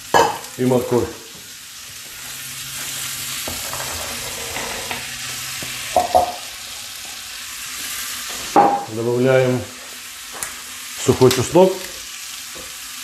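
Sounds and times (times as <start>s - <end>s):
onions sizzling in hot oil: 0.0s - 13.0s
metal bowl knocking against pot: 6.0s - 6.4s, 8.6s - 8.9s.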